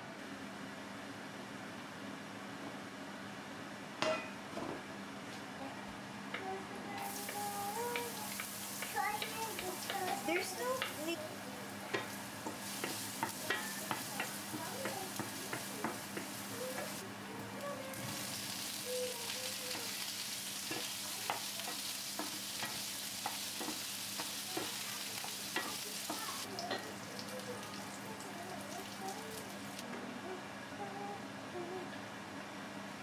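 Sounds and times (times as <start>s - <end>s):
food sizzling in a pan: 6.9s - 29.8s
wooden spoon tapping and scraping: 7.3s - 11.1s, 11.9s - 17.0s, 20.7s - 26.9s.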